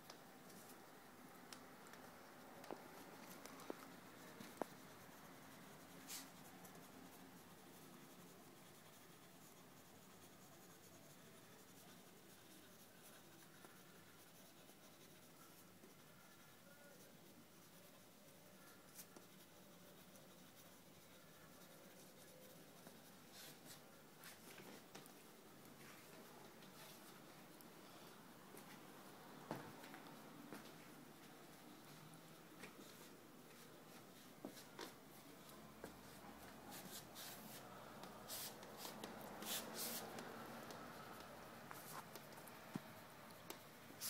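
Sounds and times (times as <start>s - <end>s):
drawing tool scratching paper: 3.8s - 23.8s.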